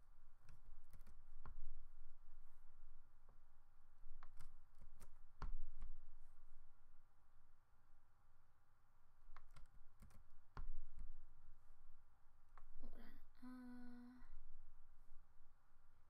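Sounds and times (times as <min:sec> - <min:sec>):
person humming a note: 0:12.8 - 0:14.3.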